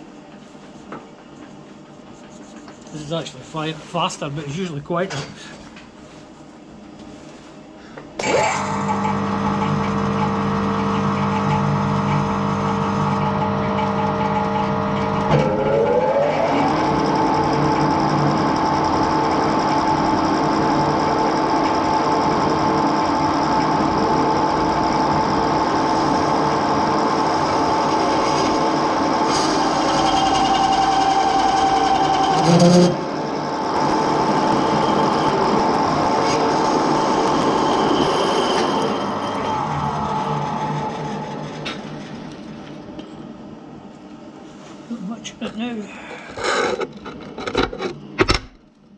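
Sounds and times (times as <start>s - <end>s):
lathe motor running: 8.2s - 43.6s.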